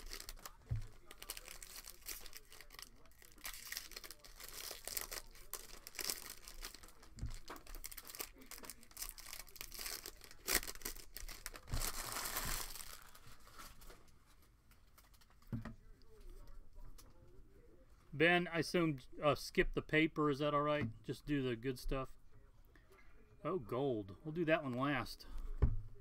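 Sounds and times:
foil wrapper crinkling and tearing: 0.0s - 15.3s.

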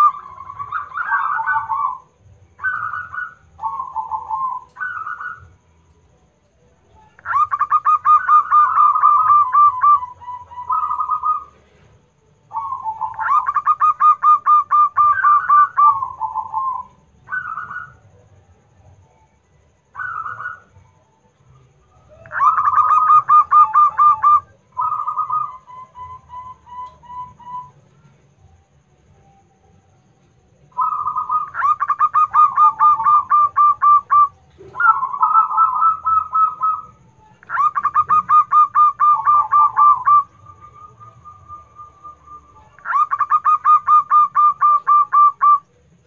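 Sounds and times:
dove cooing: 0.0s - 5.8s, 7.0s - 18.3s, 19.9s - 21.1s, 21.8s - 28.3s, 30.6s - 46.0s.

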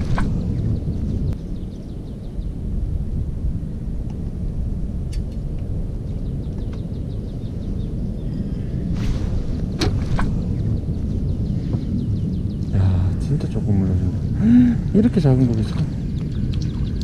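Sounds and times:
low rumble: 0.0s - 17.0s
small bird chirping: 9.6s - 17.0s.

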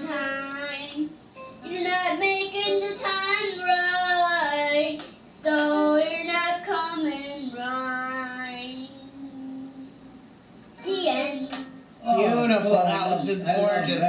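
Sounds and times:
boy singing long notes: 5.6s - 10.2s.

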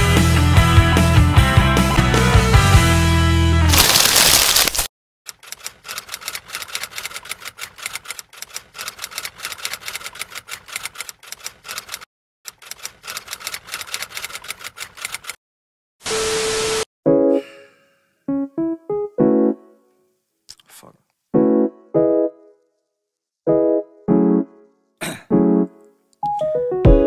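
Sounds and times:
music: 0.0s - 3.7s, 17.1s - 20.0s, 21.4s - 22.6s, 23.5s - 27.0s.

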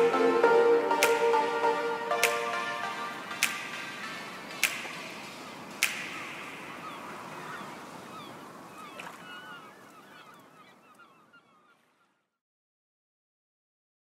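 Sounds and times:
noisy wash: 0.0s - 11.0s
birds chirping: 1.7s - 12.4s
sharp cracks: 3.3s - 6.9s.

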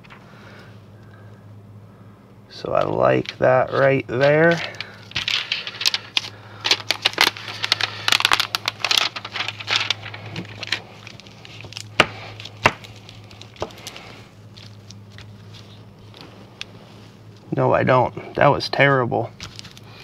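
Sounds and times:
plastic sheet crinkling: 3.2s - 17.5s, 19.3s - 20.0s.

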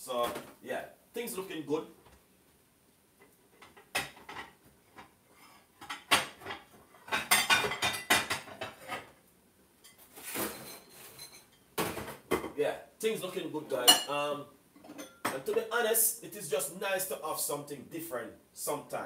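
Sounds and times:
dishes and cutlery clinking: 3.6s - 9.1s, 9.8s - 12.6s, 13.8s - 14.1s, 14.8s - 15.6s.

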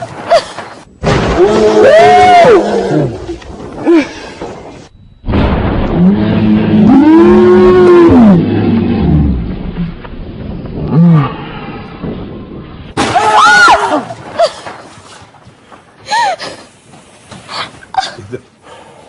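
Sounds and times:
roar-like cries of fright: 1.2s - 3.4s, 5.9s - 9.4s.

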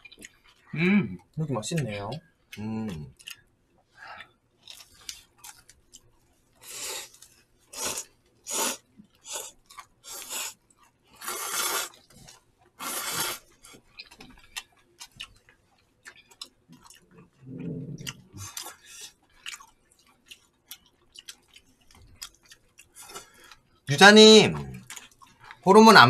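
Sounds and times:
chewing: 0.0s - 8.2s, 8.8s - 23.9s, 24.8s - 25.6s
noodles being slurped: 6.6s - 13.6s.

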